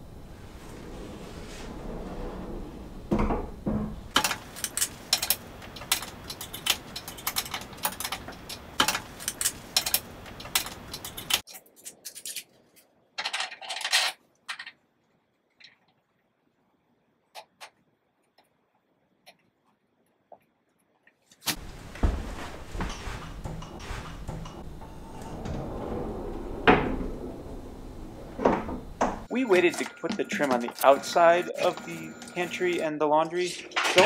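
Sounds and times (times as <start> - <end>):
metal clicking and clinking: 4.1 - 12.5.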